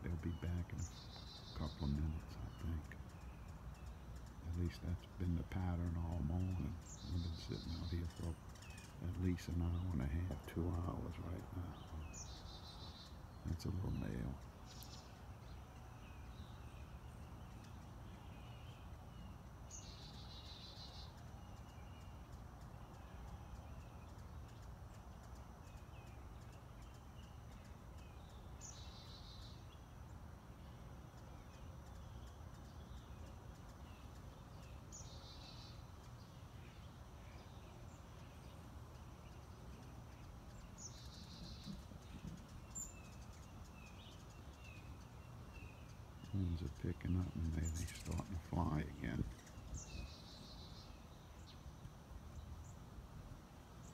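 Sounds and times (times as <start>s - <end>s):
faint low hum: 0.0s - 53.9s
bird high trill: 40.2s - 50.8s.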